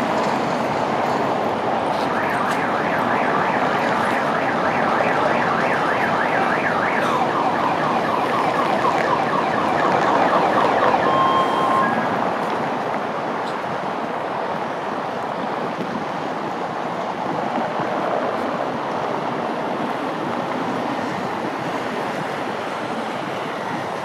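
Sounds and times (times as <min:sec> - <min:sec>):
street traffic noise: 0:00.0 - 0:24.0
electronic siren warbling: 0:02.1 - 0:12.2
short steady beep: 0:10.9 - 0:12.1.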